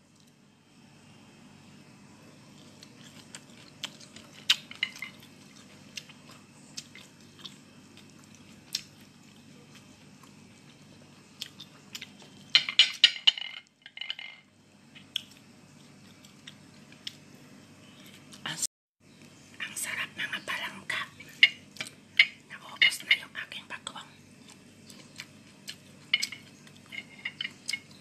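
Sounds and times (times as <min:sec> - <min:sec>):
person chewing: 0:02.4 - 0:12.5, 0:14.9 - 0:17.2, 0:24.4 - 0:28.0.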